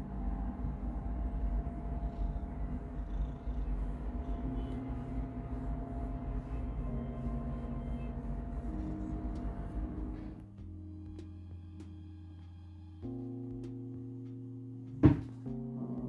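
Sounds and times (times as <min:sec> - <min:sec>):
cat purring: 0:00.0 - 0:10.4
soft held tones: 0:00.0 - 0:14.4.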